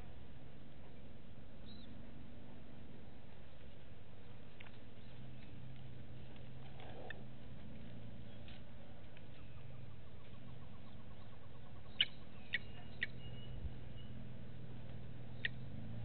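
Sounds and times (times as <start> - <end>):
steady low hum: 0.0 - 16.0
high bird chirps: 9.3 - 14.3, 15.2 - 15.8.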